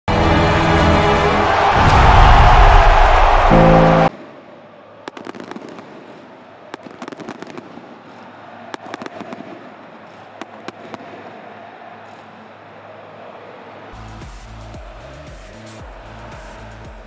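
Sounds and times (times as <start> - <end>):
loud music: 0.1 - 4.1, 14.0 - 17.0
crowd din: 0.1 - 17.0
fireworks crackling: 5.1 - 9.8.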